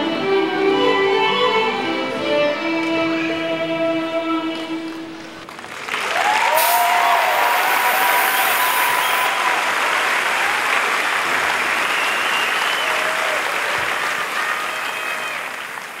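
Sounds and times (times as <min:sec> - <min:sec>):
audience applauding: 0:04.9 - 0:16.0.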